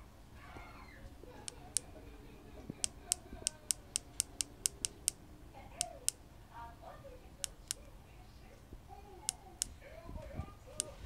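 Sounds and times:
radio keypad keys clicking: 2.8s - 5.2s, 5.8s - 6.2s, 7.4s - 7.9s, 10.8s - 11.0s.

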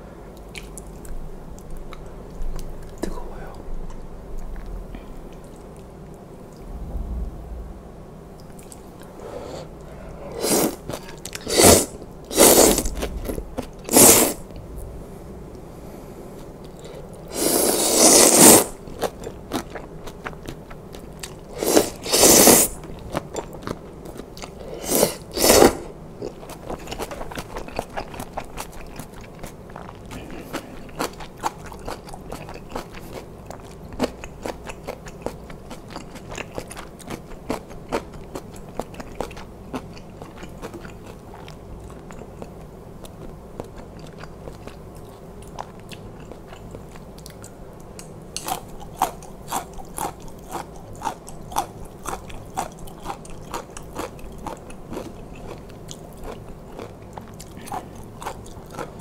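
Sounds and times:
slurping noodle soup: 9.2s - 14.4s, 17.3s - 18.8s, 21.5s - 22.8s, 24.5s - 25.9s.

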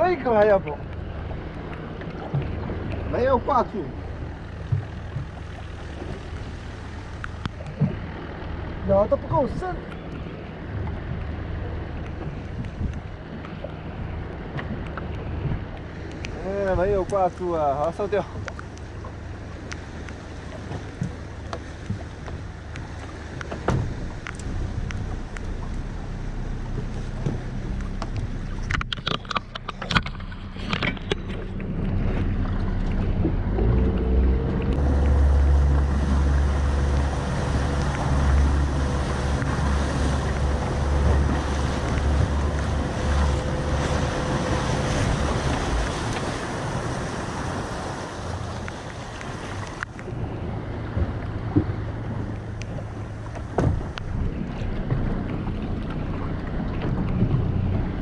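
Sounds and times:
outboard motor running: 0.0s - 58.0s
wind buffeting microphone: 9.3s - 13.3s, 20.6s - 58.0s.

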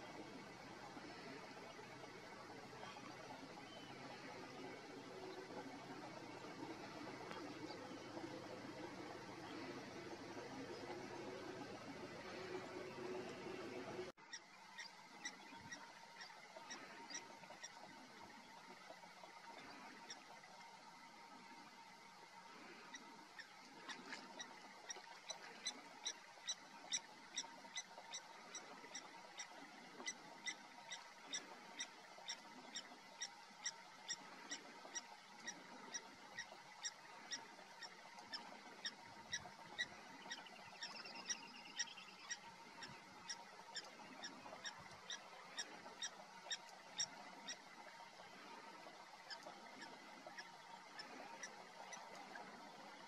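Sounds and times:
small animal pip calls: 14.2s - 18.1s, 22.6s - 53.0s.

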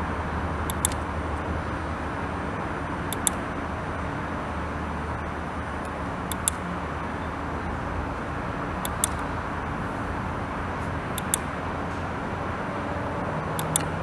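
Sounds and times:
push button double clicks: 0.7s - 1.0s, 5.8s - 6.6s, 13.6s - 13.9s.

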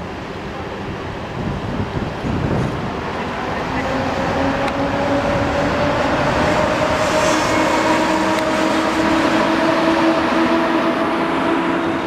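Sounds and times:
train passing rumble: 0.0s - 12.0s
locomotive whine rising in pitch: 3.2s - 12.0s.

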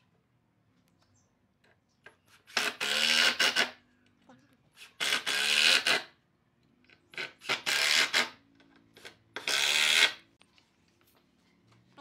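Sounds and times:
impact driver driving screw: 2.5s - 3.8s, 4.8s - 6.1s, 7.1s - 8.4s, 9.0s - 10.2s.

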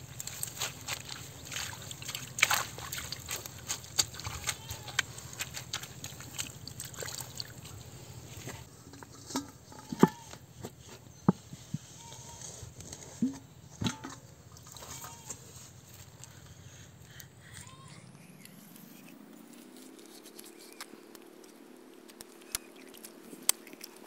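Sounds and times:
hands slapping wet mud: 0.0s - 7.8s
water splashes: 0.0s - 7.9s
metal bowl knocking: 13.2s - 14.2s.

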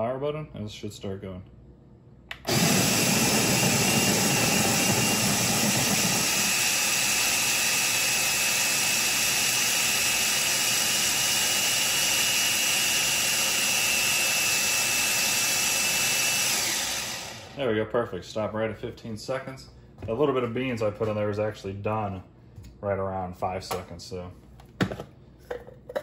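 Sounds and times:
coffee grinder power button click: 2.3s - 2.6s
grinder motor whining: 2.3s - 17.6s.

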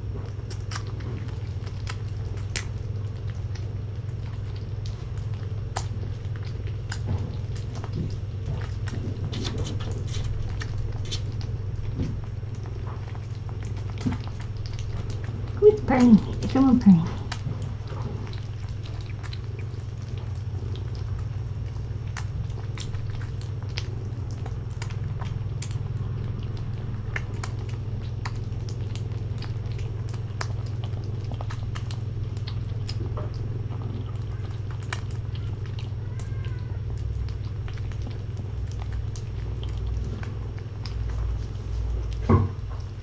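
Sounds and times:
kittens chewing and lapping: 0.0s - 43.0s
steady low hum: 0.0s - 43.0s.

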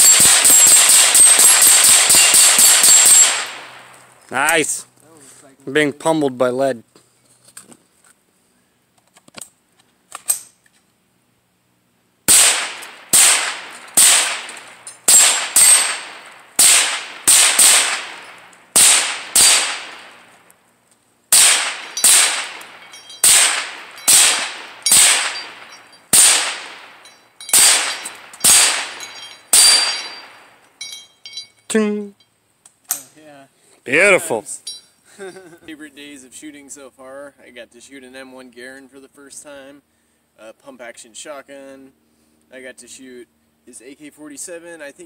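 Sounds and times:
gunshots: 0.0s - 3.9s, 12.3s - 20.3s, 21.3s - 30.5s.

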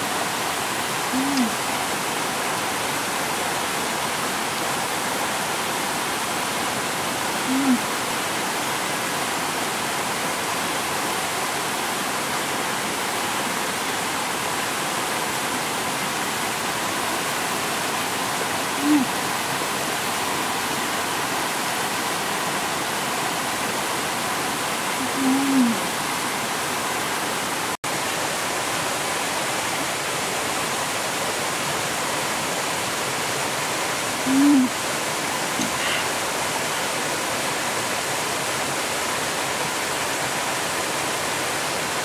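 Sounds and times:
stream water rushing: 0.0s - 42.0s
person humming while eating: 1.1s - 1.6s, 7.5s - 7.9s, 18.8s - 19.2s, 25.0s - 25.9s, 34.3s - 34.8s.

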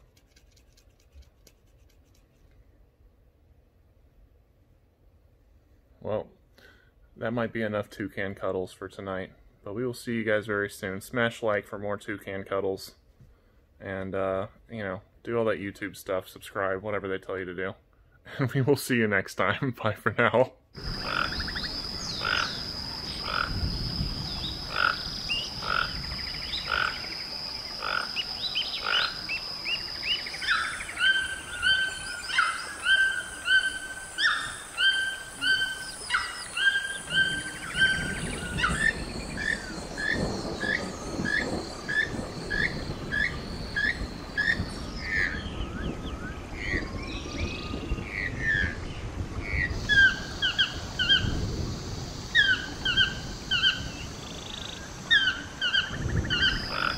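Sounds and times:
toucans yelping: 20.8s - 23.7s, 24.5s - 27.2s, 27.8s - 45.4s, 49.8s - 51.3s, 52.3s - 56.9s.

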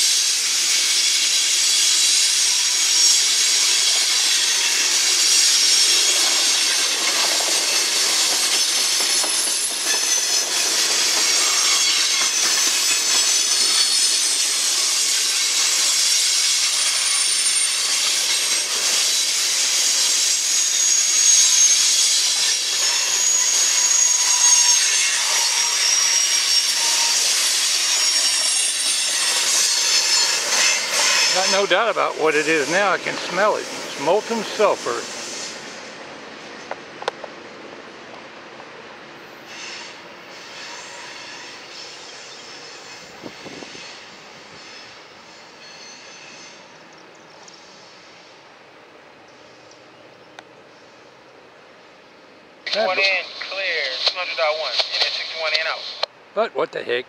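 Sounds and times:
train wheels rushing on rail: 0.0s - 56.2s
high-pitched wheel squeals: 0.4s - 35.8s, 39.4s - 46.9s.

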